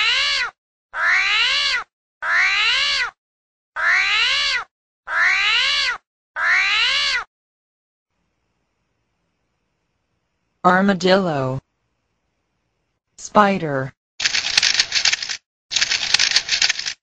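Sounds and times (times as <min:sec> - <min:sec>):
meow-like animal cry: 0:00.0 - 0:03.2, 0:03.8 - 0:07.3.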